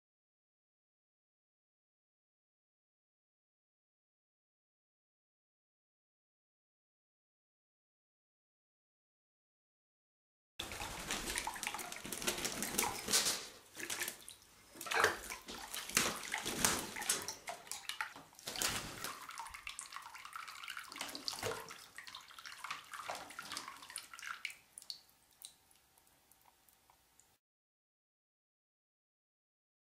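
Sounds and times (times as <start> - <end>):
parrot splashing in water: 10.6 - 25.6.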